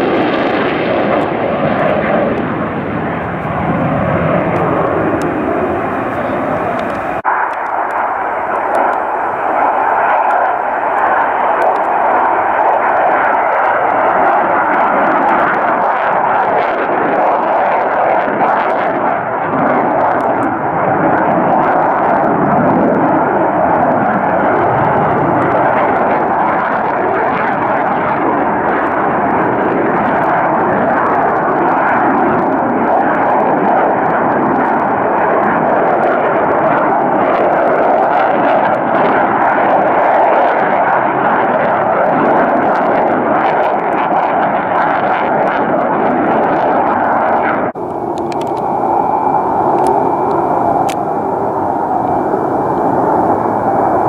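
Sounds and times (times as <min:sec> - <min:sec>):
jet engine roar: 0:00.0 - 0:54.0
deep rumble: 0:01.0 - 0:12.5, 0:47.8 - 0:54.0.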